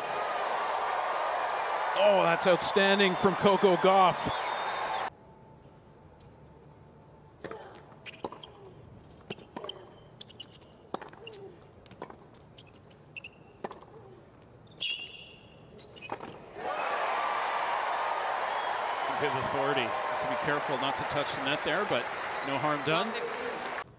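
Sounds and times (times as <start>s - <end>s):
crowd applause: 0.0s - 5.1s, 16.6s - 23.9s
shoe squeaks: 8.0s - 16.5s.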